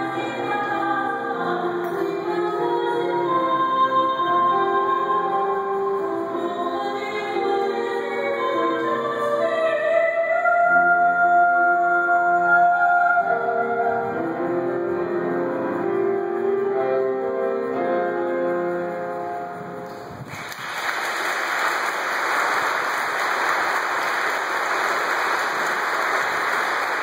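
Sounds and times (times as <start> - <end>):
woman singing: 0.0 - 14.4
audience applauding: 20.1 - 27.0.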